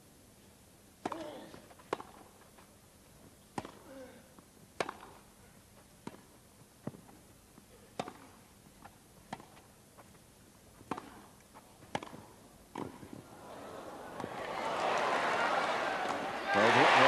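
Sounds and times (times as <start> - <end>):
racquets striking tennis ball: 1.0 - 2.5, 3.5 - 3.8, 4.8 - 5.2, 6.0 - 7.2, 7.9 - 9.7, 10.8 - 13.2, 14.1 - 14.6.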